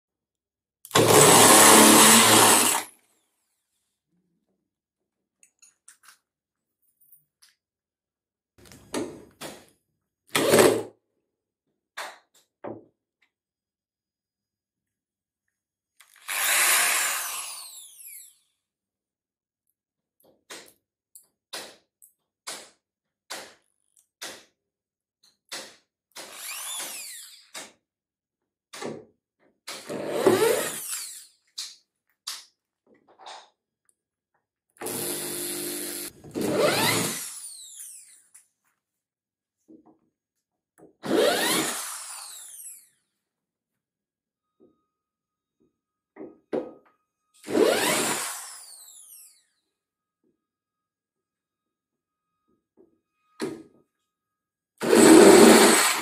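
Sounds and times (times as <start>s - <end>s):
electric drill whirring: 0.9s - 2.9s, 16.1s - 18.4s, 26.2s - 27.4s, 34.8s - 38.2s, 41.0s - 42.9s, 47.4s - 49.4s, 54.8s - 56.0s.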